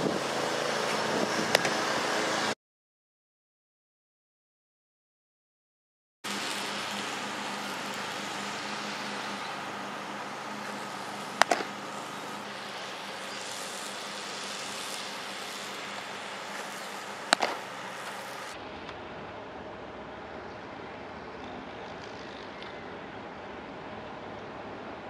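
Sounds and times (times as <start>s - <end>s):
distant road traffic: 0.0s - 2.6s, 6.3s - 25.0s
outdoor hiss: 6.2s - 25.0s
baseball smacking into mitt: 11.4s - 11.7s, 17.3s - 17.6s.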